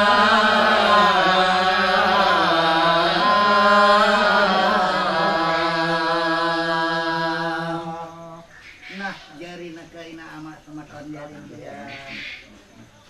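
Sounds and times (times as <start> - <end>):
man chanting: 0.0 - 8.4.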